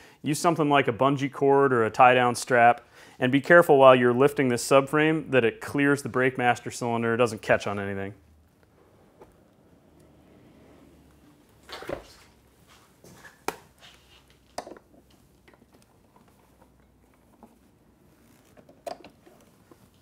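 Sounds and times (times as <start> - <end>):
motorcycle parts knocking and clattering: 14.4 - 17.6, 18.5 - 19.9.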